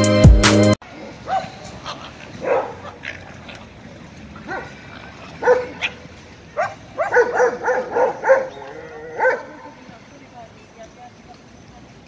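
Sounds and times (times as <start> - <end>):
dog yipping and barking: 1.2 - 3.2, 4.4 - 9.8.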